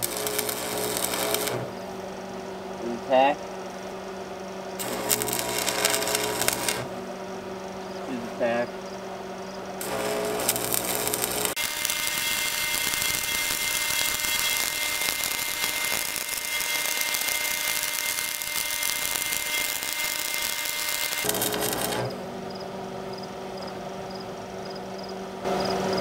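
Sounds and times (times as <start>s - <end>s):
welding arc crackling hiss: 0.0s - 2.0s, 4.8s - 6.9s, 9.8s - 22.3s.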